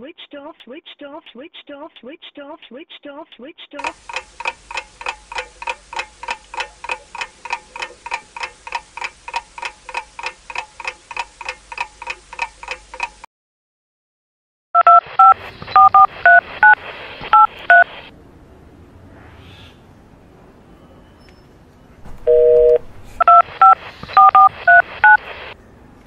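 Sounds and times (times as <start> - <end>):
clock ticking: 3.8 - 13.3
phone keypad touch tones: 14.8 - 17.9, 22.2 - 25.2.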